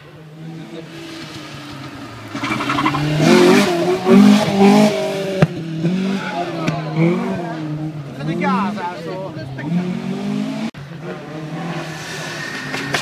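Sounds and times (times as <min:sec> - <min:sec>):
rally car engine changing gears: 0:00.4 - 0:08.9, 0:09.5 - 0:13.0
sharp crack: 0:12.6 - 0:13.0.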